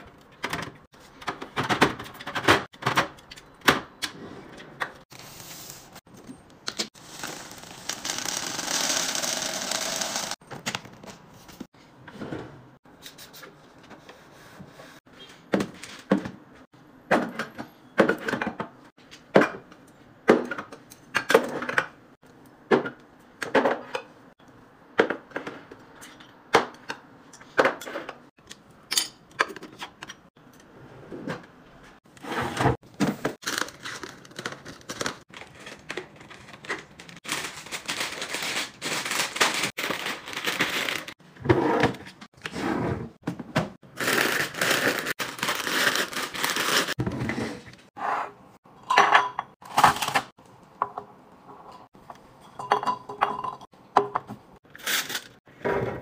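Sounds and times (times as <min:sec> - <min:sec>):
plastic packets crinkling: 0:33.4 - 0:41.2, 0:44.0 - 0:47.0.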